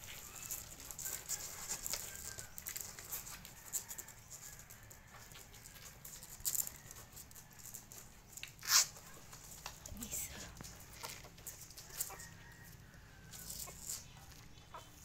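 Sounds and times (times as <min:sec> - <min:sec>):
puppies squeaking: 0:00.0 - 0:03.4, 0:13.4 - 0:15.0
rustling of fur: 0:00.0 - 0:15.0.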